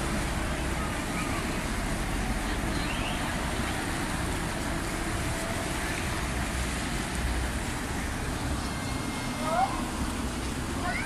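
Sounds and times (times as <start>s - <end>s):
motorboat engine drone: 0.0s - 10.8s
water wash: 0.0s - 11.0s.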